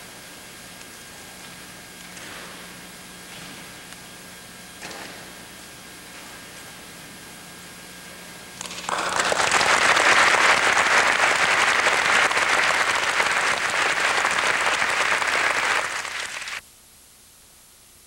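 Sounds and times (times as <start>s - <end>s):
audience applauding: 8.6s - 16.6s.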